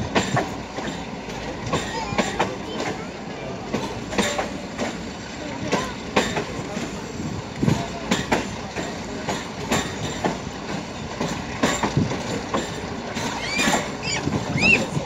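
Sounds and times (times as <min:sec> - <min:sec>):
train rumble: 0:00.0 - 0:15.0
train wheels knocking over rail joints: 0:00.0 - 0:15.0
short high squeaks: 0:13.3 - 0:14.9.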